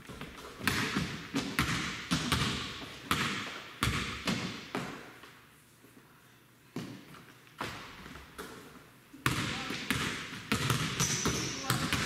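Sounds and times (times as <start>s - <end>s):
basketball bouncing on wooden floor: 0.0s - 5.0s, 7.6s - 12.0s.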